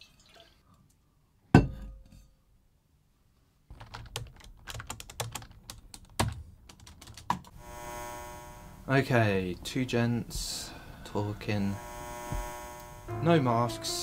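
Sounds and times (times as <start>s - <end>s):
fast keyboard typing: 3.7s - 7.5s.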